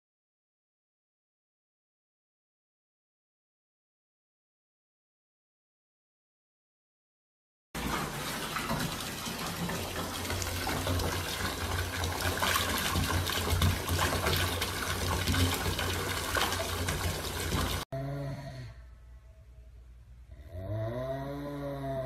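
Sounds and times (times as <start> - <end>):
water pouring into tub: 7.8 - 17.9.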